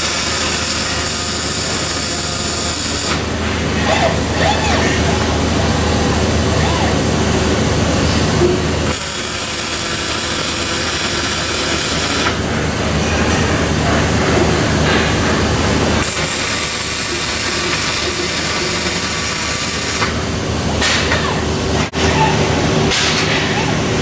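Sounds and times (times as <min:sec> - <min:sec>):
welding arc hissing: 0:00.0 - 0:04.3, 0:08.0 - 0:12.4, 0:16.0 - 0:20.4
steady machine hum: 0:00.0 - 0:24.0.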